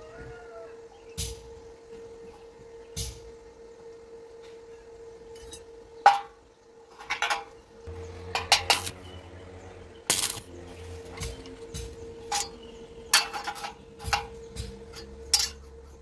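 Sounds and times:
low electrical buzz: 0:00.0 - 0:16.0
welding arc crackles: 0:07.8 - 0:15.6
steel tubing clinking: 0:08.3 - 0:09.0, 0:12.3 - 0:15.8.

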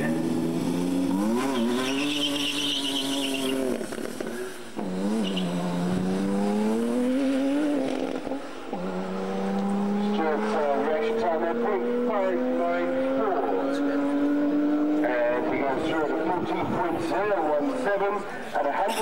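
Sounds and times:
sports car engine accelerating hard: 0:00.0 - 0:18.4
tyres squealing: 0:01.4 - 0:03.7.

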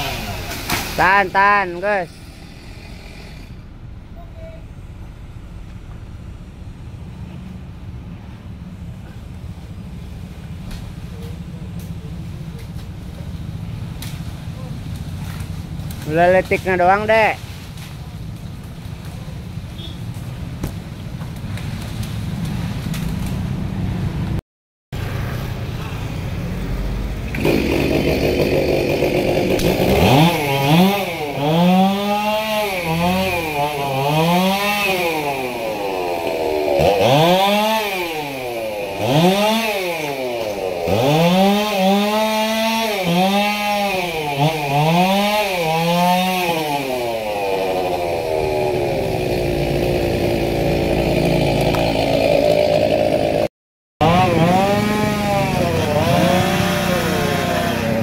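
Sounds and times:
chainsaw revving: 0:00.0 - 0:03.7, 0:27.3 - 0:58.0.

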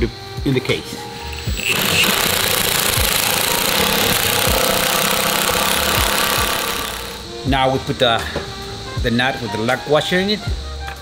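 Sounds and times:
pneumatic impact wrench hammering: 0:01.1 - 0:07.3.

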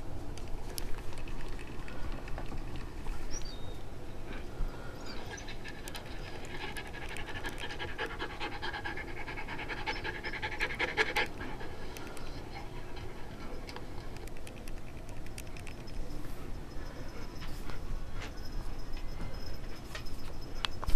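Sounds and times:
dog panting: 0:05.2 - 0:13.8.

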